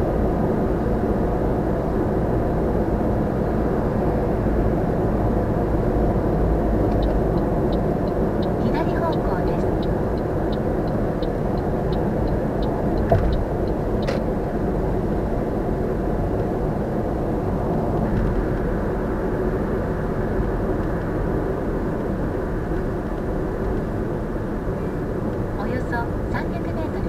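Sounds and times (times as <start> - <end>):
car engine running: 0.0 - 27.0
tyre and road noise: 0.0 - 27.0
light regular ticking: 6.9 - 14.2.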